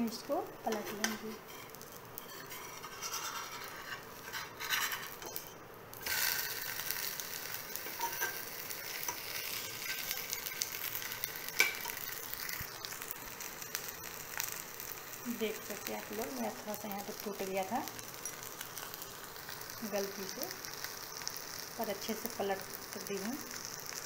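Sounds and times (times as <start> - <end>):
food sizzling in oil: 0.0 - 24.0
metal spatula scraping: 0.7 - 5.6, 9.0 - 10.7.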